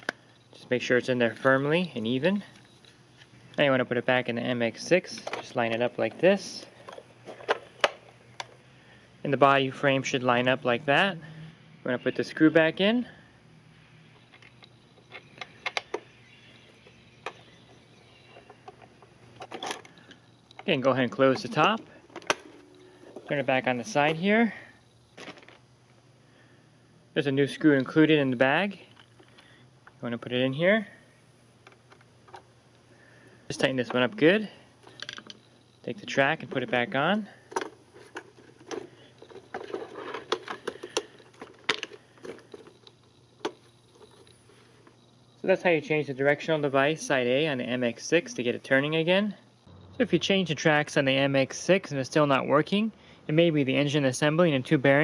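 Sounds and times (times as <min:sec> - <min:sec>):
hard plastic parts clicking: 0:14.2 - 0:16.1, 0:37.5 - 0:45.0.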